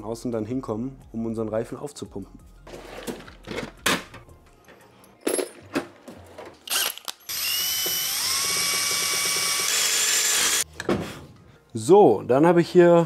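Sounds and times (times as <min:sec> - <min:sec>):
electric drill whining: 0:06.7 - 0:10.6.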